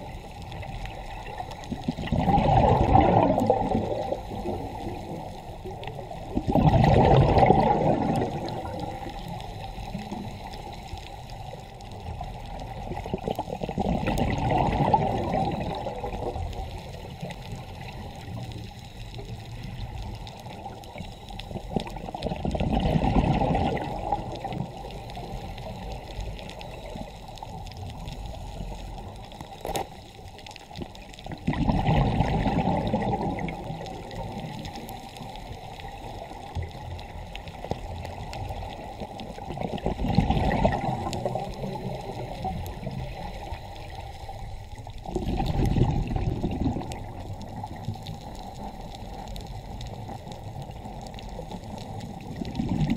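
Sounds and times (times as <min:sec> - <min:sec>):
low underwater hiss: 0:00.0 - 0:52.9
underwater bubbles gurgling: 0:00.0 - 0:52.9.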